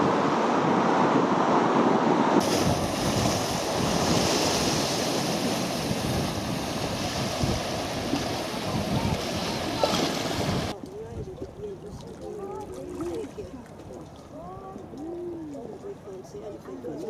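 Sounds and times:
sea waves breaking over rocks: 0.0s - 11.3s
wind buffeting microphone: 0.0s - 15.2s.

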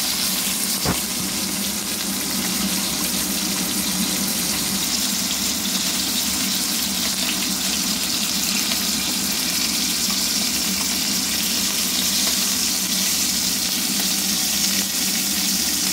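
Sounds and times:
fish sizzling in oil: 0.0s - 15.9s.

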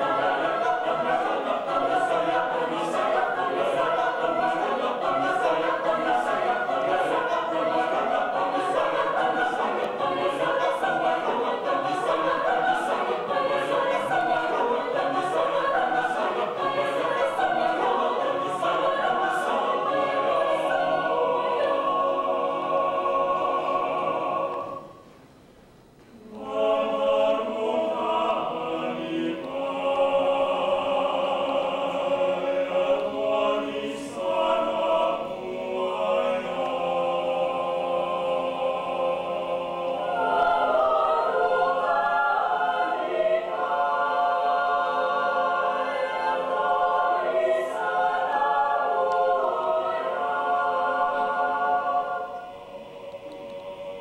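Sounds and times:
mixed choir singing a cappella: 0.0s - 25.1s, 26.1s - 54.0s.

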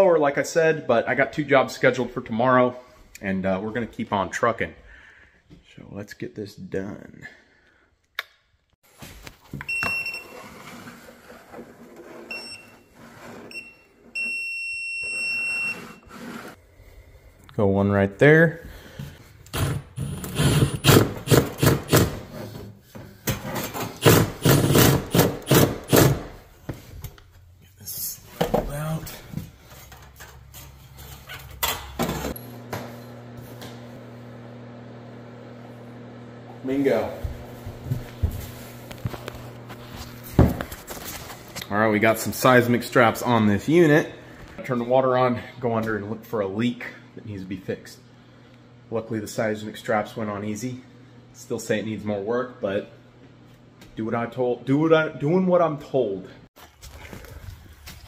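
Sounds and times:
stud finder beeps: 9.6s - 10.4s, 12.3s - 12.9s, 13.5s - 16.1s
long steady beep: 13.5s - 16.0s.

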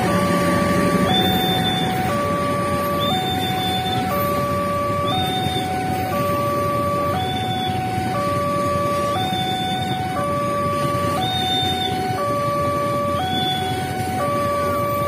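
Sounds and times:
train rumbling past: 0.0s - 15.0s
two-tone crossing alarm: 0.0s - 15.0s.

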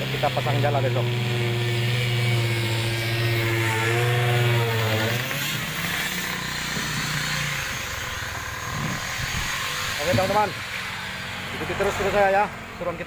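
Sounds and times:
motor humming: 0.0s - 12.8s
outdoor background noise: 0.0s - 13.0s.

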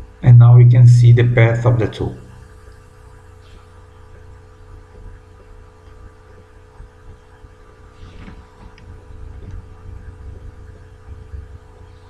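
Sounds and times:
low electrical hum: 0.0s - 12.0s
faint brief rustle: 7.9s - 8.9s.

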